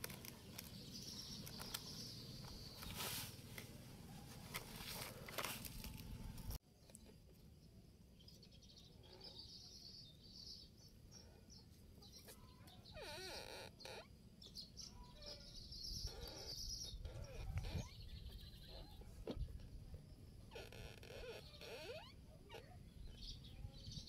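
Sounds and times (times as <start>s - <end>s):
bird chirps: 8.2s - 19.2s.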